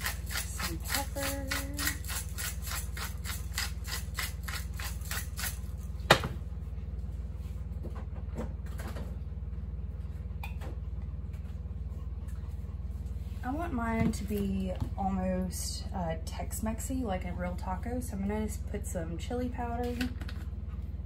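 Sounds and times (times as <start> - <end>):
pepper grinder grinding: 0.0 - 5.9
steady low hum: 0.0 - 21.0.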